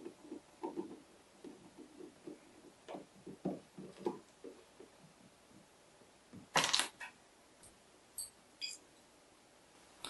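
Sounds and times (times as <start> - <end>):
fingers rubbing and tapping plastic: 0.0 - 5.0.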